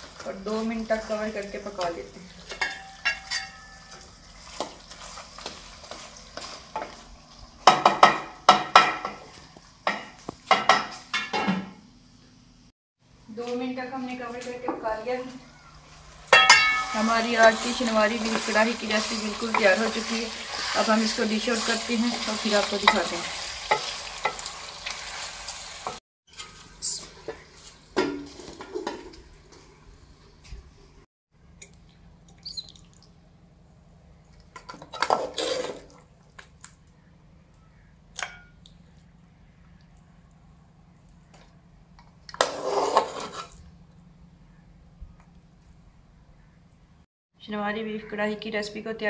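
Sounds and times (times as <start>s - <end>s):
steel lid clinking: 2.5s - 4.1s, 16.3s - 17.1s
metal pot and lid clanking: 2.5s - 4.7s, 9.9s - 11.8s, 16.3s - 17.6s, 38.2s - 38.6s
meat sizzling in a pot: 3.7s - 8.5s, 15.9s - 26.7s
spoon scraping metal pot: 42.3s - 43.7s.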